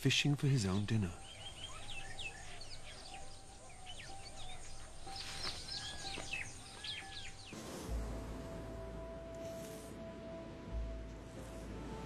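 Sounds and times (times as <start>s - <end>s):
birds chirping and calling: 0.2s - 7.6s.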